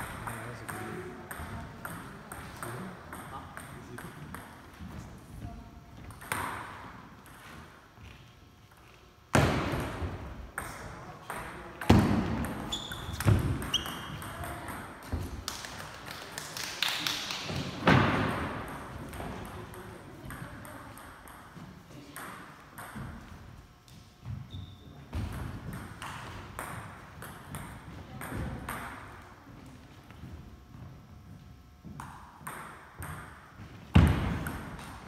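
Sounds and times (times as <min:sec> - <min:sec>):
table tennis ball bouncing: 0:00.0 - 0:04.8, 0:06.0 - 0:07.7, 0:09.3 - 0:16.3, 0:17.3 - 0:23.4, 0:25.1 - 0:29.2, 0:31.8 - 0:35.0.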